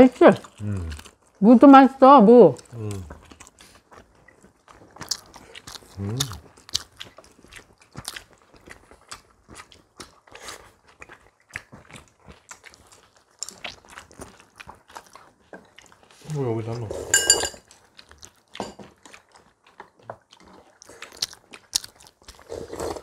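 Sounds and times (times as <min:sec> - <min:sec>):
people chewing: 0:00.0 - 0:01.4, 0:02.5 - 0:23.0
chopsticks and spoons clicking on bowls: 0:17.0 - 0:17.6.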